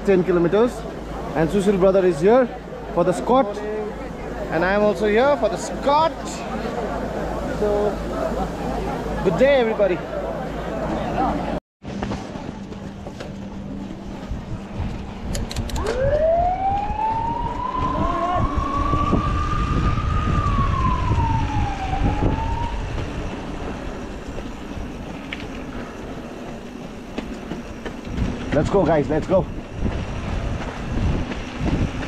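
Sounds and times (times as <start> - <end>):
siren wailing: 15.8 - 25.8.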